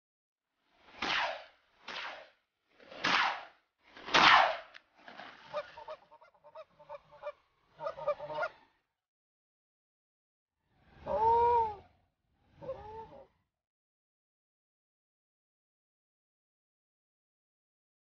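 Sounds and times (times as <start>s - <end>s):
geese honking: 5.4s - 8.6s.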